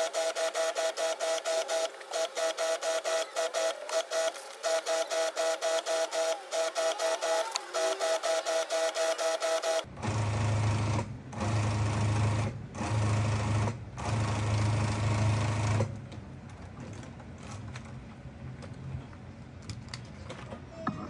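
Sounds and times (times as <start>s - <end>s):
sewing machine stitching: 0.0s - 15.9s
sewing machine hum: 0.0s - 16.0s.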